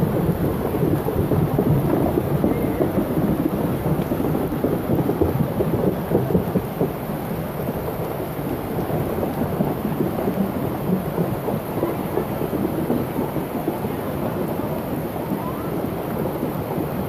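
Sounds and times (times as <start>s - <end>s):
floodwater rushing: 0.0s - 17.0s
rain falling: 0.0s - 17.0s.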